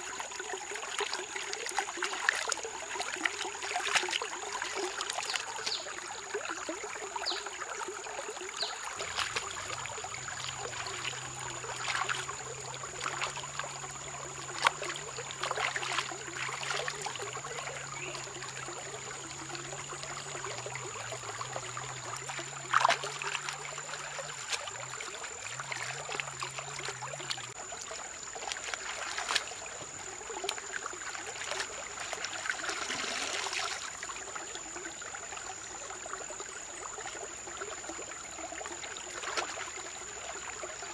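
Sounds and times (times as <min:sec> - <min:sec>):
stream running over rocks: 0:00.0 - 0:40.9
hands splashing in water: 0:09.0 - 0:12.4, 0:14.5 - 0:17.3, 0:22.2 - 0:25.1, 0:28.4 - 0:29.6, 0:30.4 - 0:33.9.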